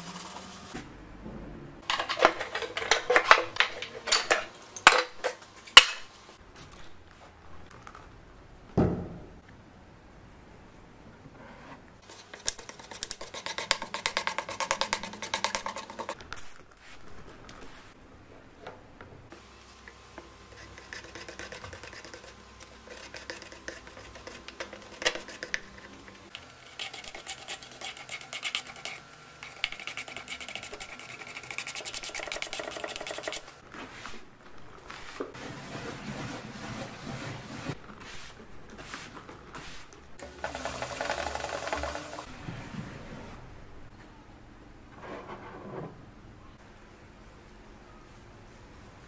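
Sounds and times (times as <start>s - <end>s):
spatula scraping filler on wood: 20.5s - 26.0s.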